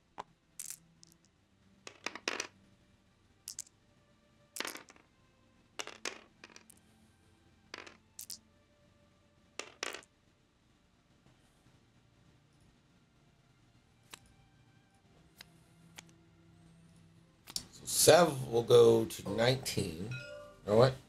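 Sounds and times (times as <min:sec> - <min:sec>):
dice clacking: 0:00.1 - 0:02.6, 0:03.4 - 0:03.8, 0:04.6 - 0:05.1, 0:05.8 - 0:06.8, 0:07.7 - 0:08.4, 0:09.6 - 0:10.1.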